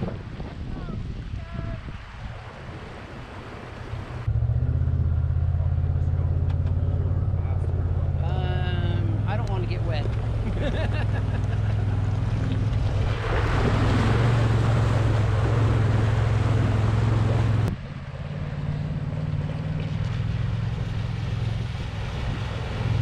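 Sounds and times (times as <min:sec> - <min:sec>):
water rushing and spraying: 0:00.0 - 0:04.4, 0:08.4 - 0:23.0
distant water splashing: 0:00.0 - 0:23.0
utility vehicle engine running: 0:04.1 - 0:23.0.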